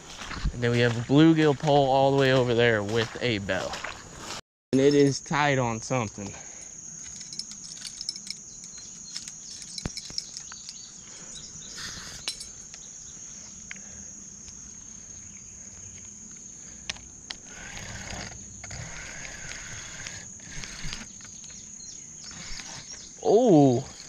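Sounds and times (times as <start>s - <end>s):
high insect drone: 0.1s - 24.0s
handling clicks and rustles: 7.0s - 12.9s
fishing reel cranking: 17.4s - 21.3s.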